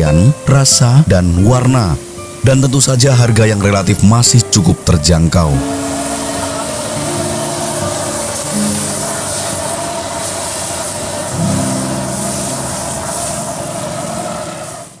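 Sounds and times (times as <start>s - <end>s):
grill flames hissing and roaring: 5.2s - 15.0s
low sustained tones: 5.5s - 14.8s.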